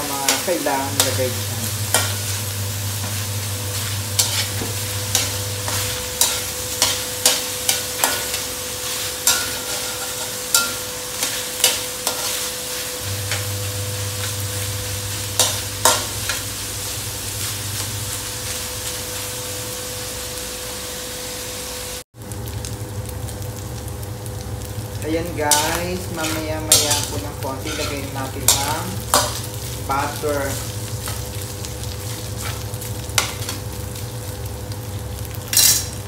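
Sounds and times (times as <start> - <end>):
meat sizzling in a wok: 0.0 - 36.0
metal spatula scraping pan: 9.3 - 11.4, 26.2 - 29.3.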